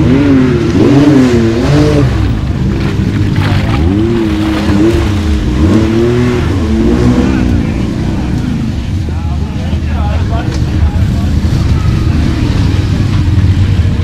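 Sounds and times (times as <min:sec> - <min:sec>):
utv engine revving: 0:00.0 - 0:14.0.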